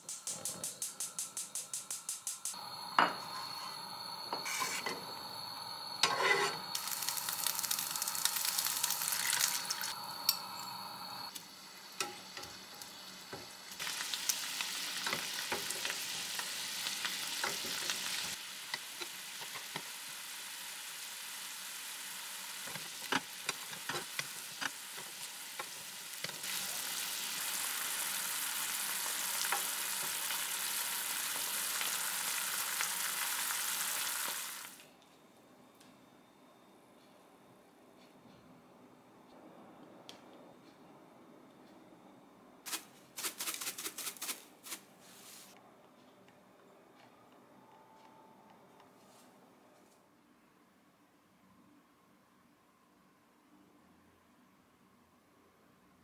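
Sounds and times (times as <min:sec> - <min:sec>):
metal spoon scraping a pan: 0:04.4 - 0:05.0, 0:06.0 - 0:06.8
fish sizzling in a frying pan: 0:06.6 - 0:10.9, 0:11.8 - 0:34.8.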